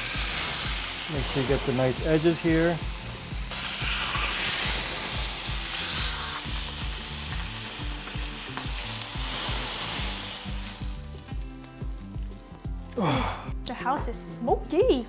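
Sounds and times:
meat sizzling in a skillet: 0:00.0 - 0:12.9
background music with beat: 0:00.0 - 0:15.0.

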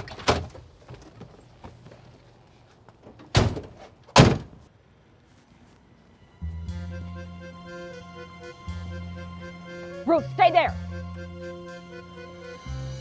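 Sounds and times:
car doors slamming shut: 0:03.2 - 0:04.6.

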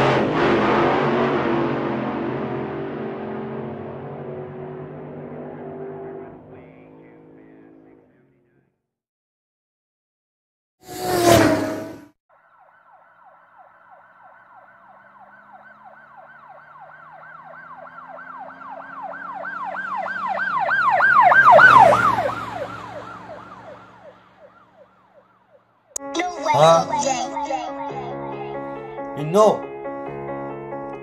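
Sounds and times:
vehicle engine passing: 0:00.0 - 0:08.4, 0:10.9 - 0:12.1, 0:13.8 - 0:25.8
siren in fast yelp: 0:12.3 - 0:28.4.

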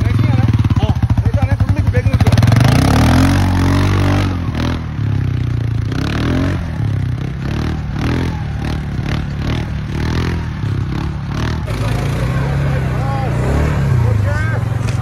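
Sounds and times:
quad bike engine under load: 0:00.0 - 0:15.0
wheels scraping and clattering in snow: 0:06.2 - 0:15.0.

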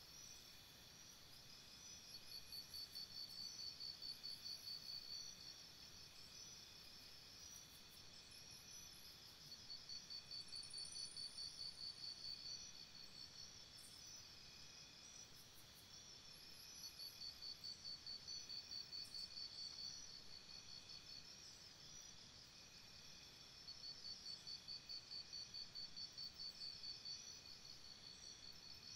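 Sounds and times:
insects chirping: 0:00.0 - 0:28.9.

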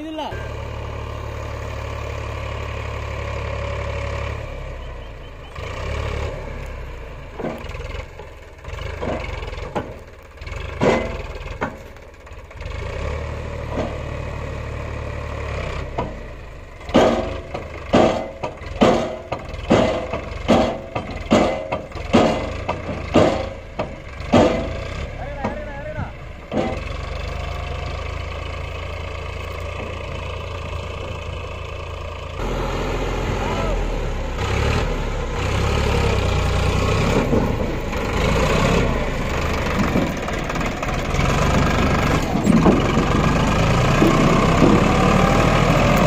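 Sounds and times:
diesel engine humming: 0:00.0 - 0:46.0
sharp knocks: 0:10.7 - 0:11.9, 0:16.9 - 0:25.7, 0:43.8 - 0:45.4.

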